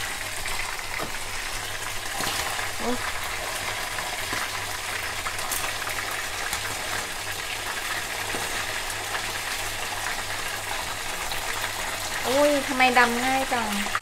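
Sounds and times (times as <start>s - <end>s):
chicken frying in hot oil: 0.0s - 14.0s
spitting oil crackles: 0.1s - 9.3s.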